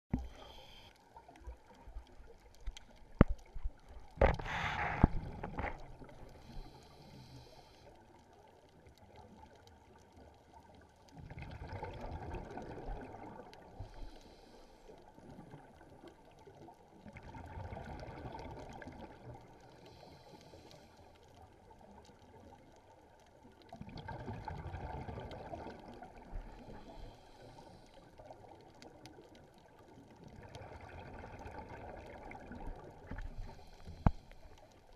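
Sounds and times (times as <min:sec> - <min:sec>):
regulator exhaust bubbles underwater: 0:11.1 - 0:13.8, 0:23.7 - 0:27.0, 0:28.4 - 0:34.5.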